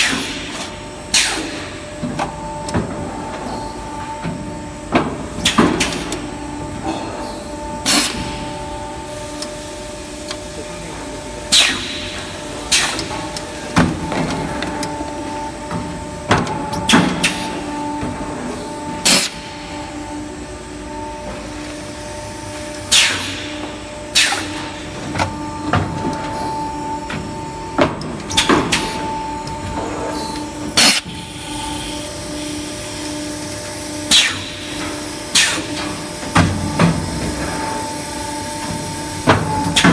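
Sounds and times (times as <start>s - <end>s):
blow moulding machine humming: 0.0s - 39.9s
pneumatic air hisses: 34.1s - 34.6s.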